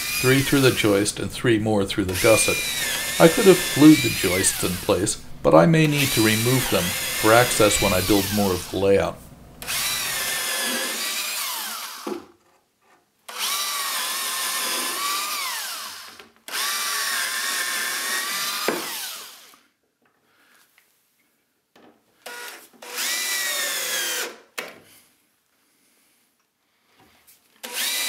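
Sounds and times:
cordless drill driving screws: 0.0s - 1.0s, 2.1s - 5.2s, 5.9s - 8.8s, 9.6s - 12.2s, 13.3s - 19.6s, 22.2s - 24.5s, 27.6s - 28.0s.

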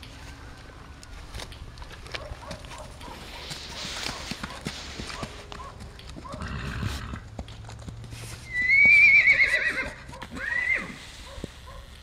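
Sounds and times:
hooves clip-clopping on dirt: 0.0s - 12.0s
horse whinnying: 6.4s - 7.2s, 8.4s - 11.0s.

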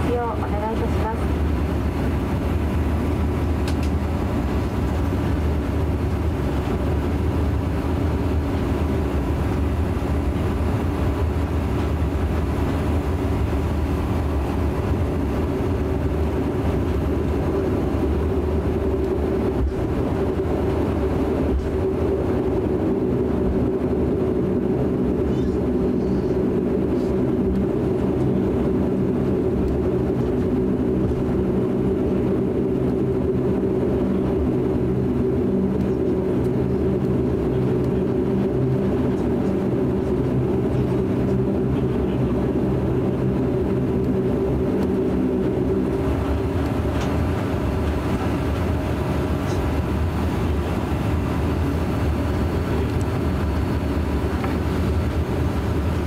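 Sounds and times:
turboprop engines humming in cabin: 0.0s - 56.0s.

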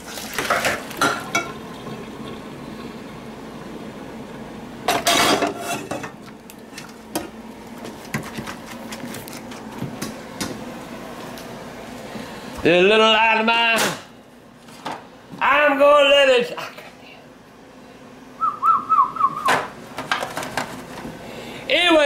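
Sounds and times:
pots and utensils clattering: 0.0s - 1.6s, 4.9s - 7.3s, 20.0s - 21.0s
steady low hum: 0.0s - 22.0s.

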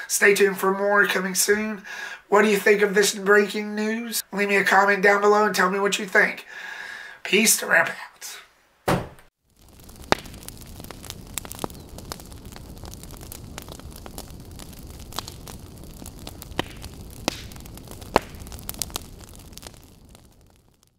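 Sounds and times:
fire burning and crackling: 9.3s - 20.9s.

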